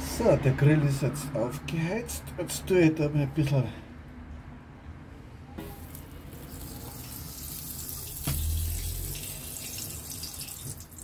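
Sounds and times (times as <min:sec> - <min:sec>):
fat sizzling on griddle: 0:05.8 - 0:10.9.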